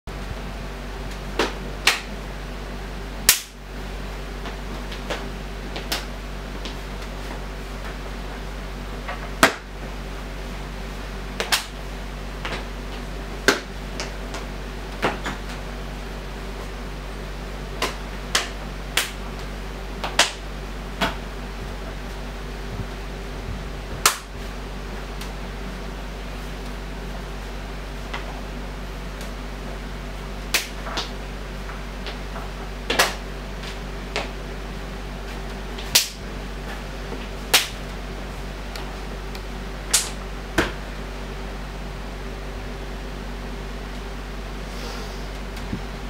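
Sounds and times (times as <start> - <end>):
steady low hum: 0.1 - 46.0
footwork slaps: 1.1 - 2.2, 3.2 - 3.6, 4.4 - 8.0, 9.0 - 9.7, 11.4 - 11.8, 12.4 - 15.6, 17.7 - 20.4, 24.0 - 24.4, 30.4 - 34.4, 35.3 - 37.8, 39.9 - 40.8.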